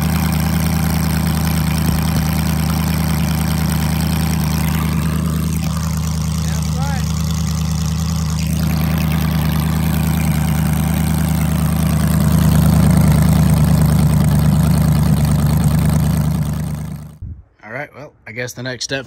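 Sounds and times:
car engine idling: 0.0s - 17.2s.

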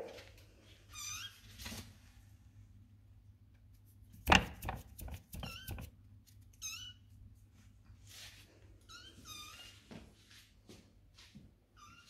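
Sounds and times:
loud knock: 4.2s - 5.9s.

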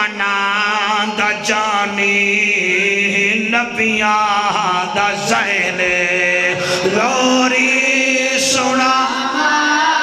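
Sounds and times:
man chanting melodically: 0.0s - 10.0s.

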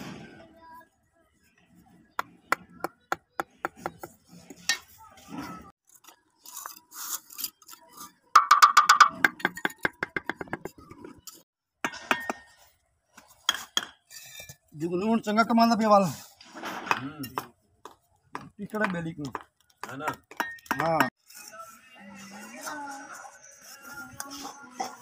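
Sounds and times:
trowel tapping on bricks: 8.4s - 11.0s.

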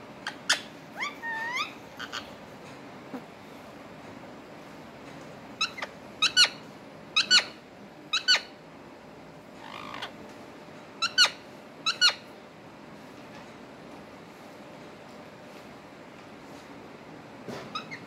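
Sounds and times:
parakeets high-pitched calls: 0.2s - 2.3s, 5.6s - 6.6s, 7.2s - 8.5s, 9.6s - 10.2s, 11.0s - 12.3s, 17.7s - 18.0s.

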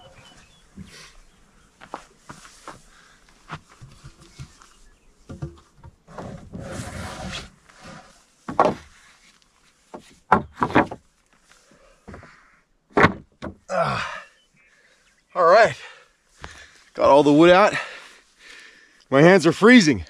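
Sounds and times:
wooden boards scraping: 3.6s - 11.1s
wooden boards knocking: 8.5s - 8.9s, 9.9s - 11.0s, 12.9s - 13.6s.

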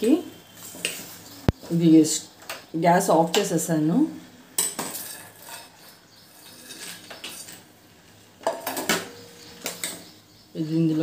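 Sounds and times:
metal spoon scraping a pot: 4.6s - 7.7s.

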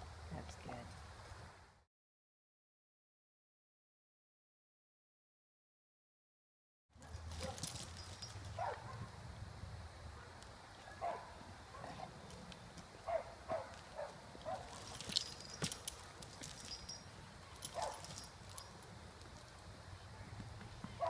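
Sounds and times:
heavy chain clinking and rattling: 7.0s - 8.8s, 14.4s - 19.6s.

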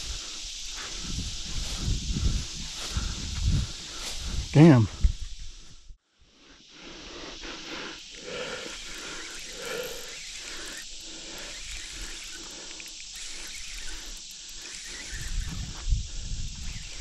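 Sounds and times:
insect chorus: 0.0s - 17.0s
faint ticks: 8.7s - 15.8s.

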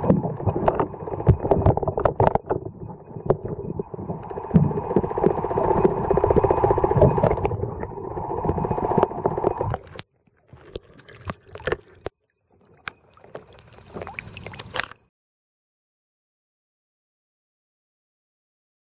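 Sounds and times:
muffled underwater rumble: 0.0s - 10.0s
rapid crackling: 0.0s - 10.0s.

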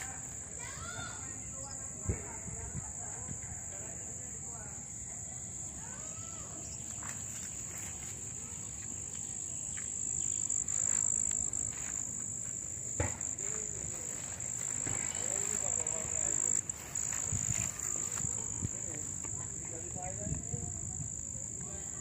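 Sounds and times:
high-pitched insect drone: 3.8s - 22.0s
sharp knock: 13.0s - 13.3s.

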